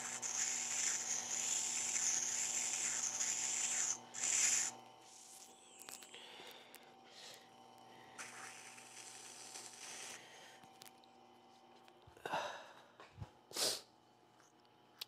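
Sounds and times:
grinder motor hum: 0.0s - 6.2s.

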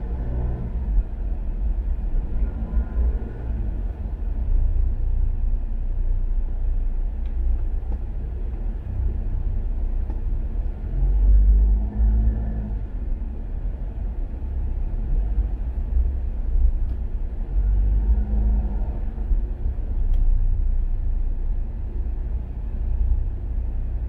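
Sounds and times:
car rumbling in slow traffic: 0.0s - 24.0s
faint tick: 7.2s - 8.6s, 20.1s - 20.3s.

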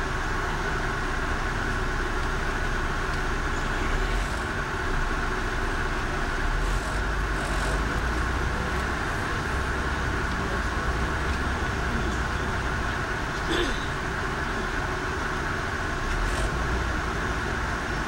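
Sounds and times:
engine and road noise: 0.0s - 18.0s.

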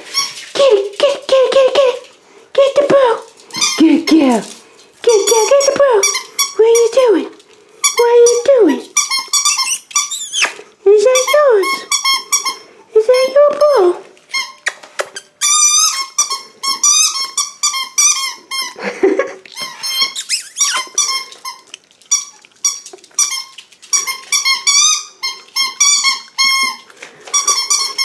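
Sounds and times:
squeaky toy squeaking: 5.1s - 7.0s, 7.8s - 13.4s, 14.3s - 18.8s, 19.6s - 28.0s.

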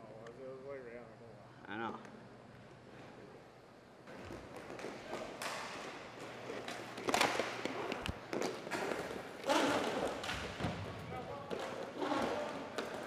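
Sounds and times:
goalie pads sticks and puck thuds: 4.1s - 13.0s.

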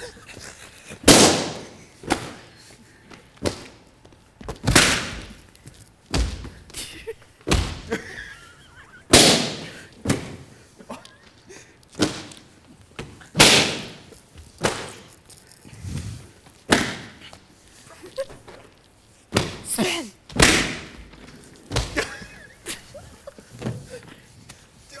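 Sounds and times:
balloons popping: 1.0s - 2.5s, 4.6s - 6.8s, 9.1s - 10.4s, 13.2s - 17.3s.

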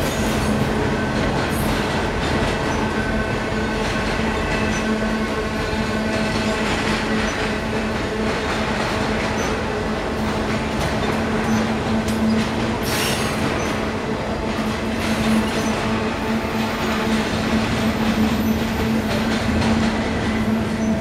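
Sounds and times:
train wheels rumbling on rail: 0.0s - 21.0s
wheels clicking over rail joints: 5.8s - 21.0s.

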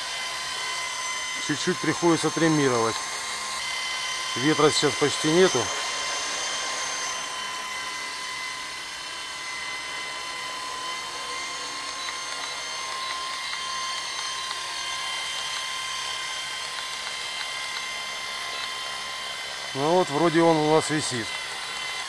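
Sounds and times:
rc helicopter rotor whine: 0.0s - 22.0s.

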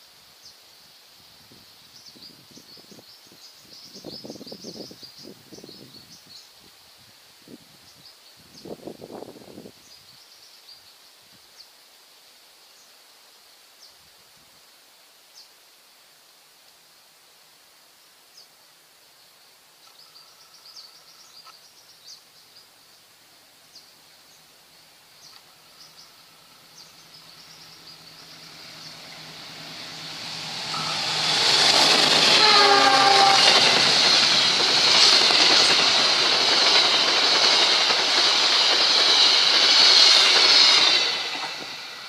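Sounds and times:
approaching diesel train: 23.6s - 42.0s
high insect buzz: 24.7s - 38.4s
bird chirps: 25.2s - 32.2s.

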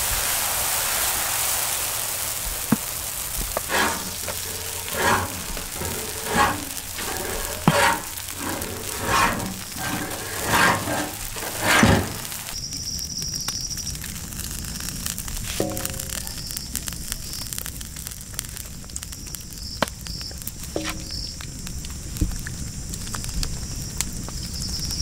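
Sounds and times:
batter sizzling on a griddle: 0.0s - 25.0s
batter spreading swish: 3.6s - 12.6s.

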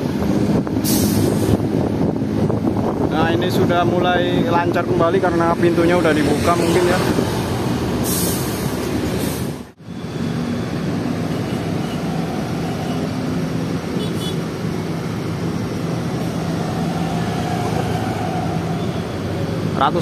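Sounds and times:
bus diesel engines droning: 0.0s - 20.0s.

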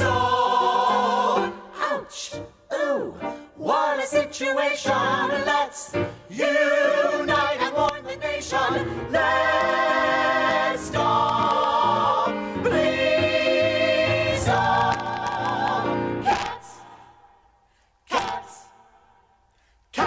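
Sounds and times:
chorus singing with band: 0.0s - 2.0s, 3.6s - 17.1s.

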